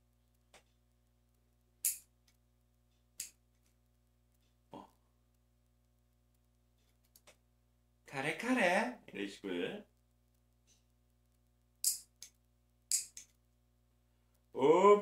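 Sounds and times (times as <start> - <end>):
nail clipper snapping: 11.8 - 13.3.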